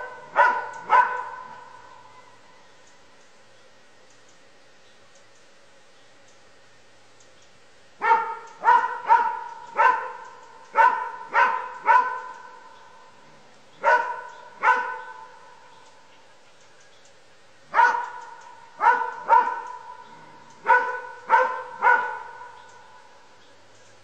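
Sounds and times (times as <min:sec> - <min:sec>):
dog barking: 0:00.0 - 0:01.8, 0:08.0 - 0:12.6, 0:13.8 - 0:15.4, 0:17.7 - 0:20.0, 0:20.6 - 0:22.6.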